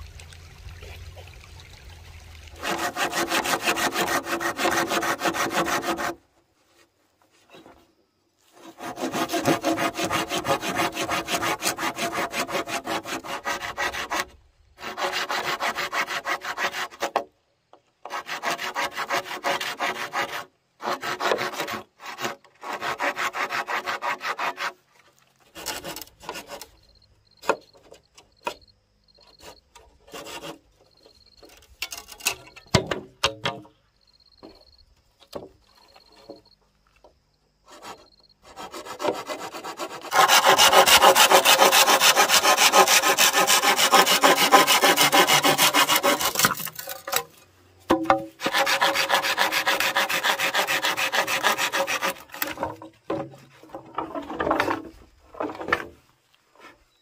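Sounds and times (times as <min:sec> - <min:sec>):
hand saw cutting wood: 0:02.6 - 0:06.3, 0:08.5 - 0:17.3, 0:18.0 - 0:32.7, 0:37.6 - 0:56.0.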